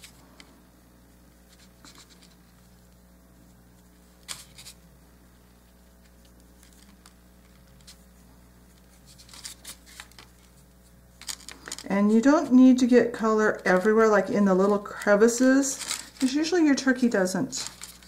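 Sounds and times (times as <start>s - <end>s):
steady low hum: 0.0s - 18.0s.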